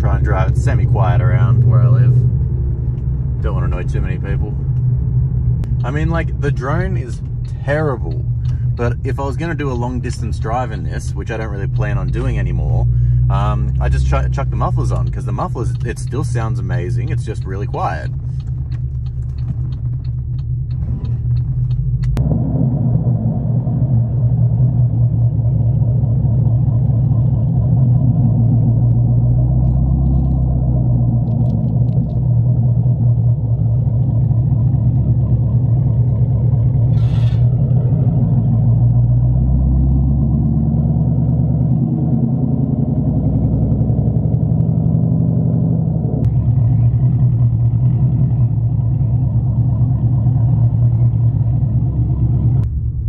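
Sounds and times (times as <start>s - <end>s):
loud car exhaust: 0.0s - 53.0s.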